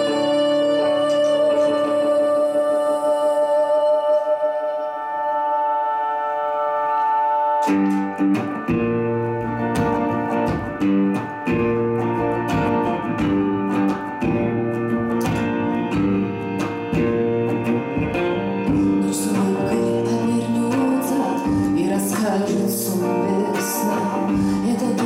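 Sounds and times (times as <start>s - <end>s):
ringing guitar chord: 0.0s - 25.0s
electric guitar repeating figure: 5.3s - 25.0s
frame drum beat: 8.6s - 19.9s.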